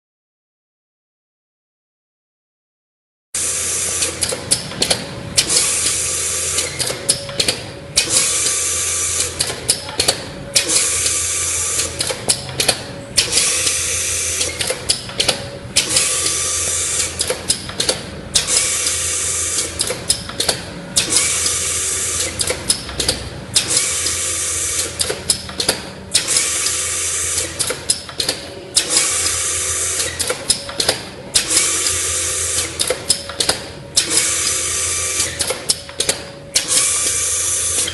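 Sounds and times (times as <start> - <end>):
faint machine hum: 3.4 - 37.9
engraving machine hiss: 8.0 - 9.4, 10.6 - 12.1, 13.2 - 14.7, 15.8 - 17.3, 18.4 - 19.9, 21.0 - 22.5, 26.1 - 27.7, 28.8 - 30.3, 34.0 - 35.5, 36.6 - 37.9.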